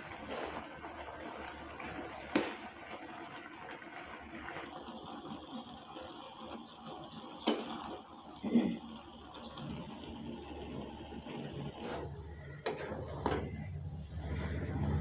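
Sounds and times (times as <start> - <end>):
noodles simmering in a pan: 0.0 - 15.0
metal spatula scraping a pan: 11.8 - 13.6.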